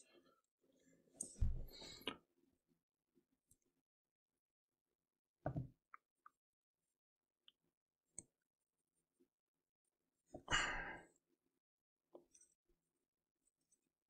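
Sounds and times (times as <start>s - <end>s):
soft thump: 1.4s - 1.7s.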